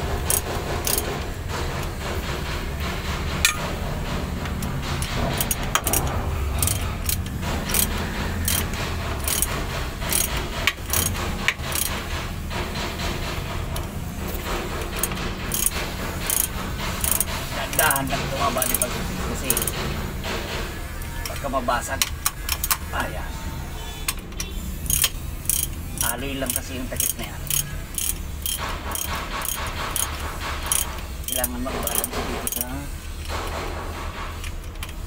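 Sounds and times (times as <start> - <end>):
steady low hum: 0.0 - 24.1.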